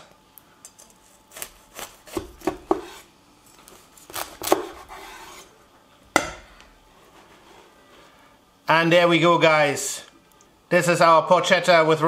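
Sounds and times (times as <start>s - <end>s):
knife crunching through crisp skin: 0.8s - 2.9s, 3.5s - 5.1s.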